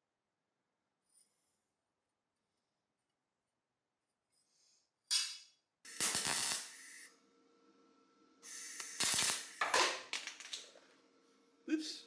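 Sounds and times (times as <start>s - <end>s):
faint welder hum: 5.1s - 12.0s
welding arc hiss: 5.9s - 7.1s, 8.4s - 10.1s.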